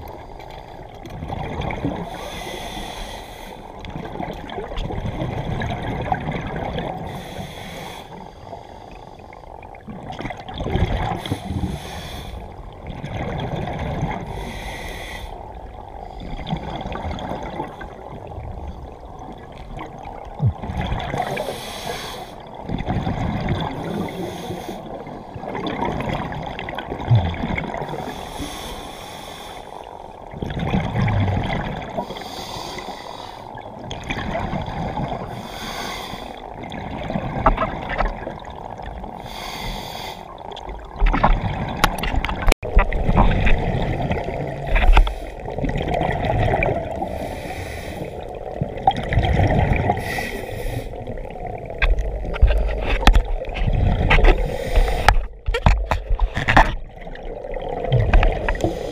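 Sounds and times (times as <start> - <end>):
regulator bubbles gurgling: 0.0 - 2.6, 3.7 - 7.4, 9.3 - 14.6, 15.5 - 28.2, 29.8 - 32.3, 33.6 - 35.7, 36.3 - 58.9
low rumble of moving water: 0.0 - 58.9
regulator inhalations: 2.2 - 3.6, 7.1 - 9.0, 21.3 - 22.4, 35.4 - 36.4, 39.2 - 40.3, 54.4 - 55.3.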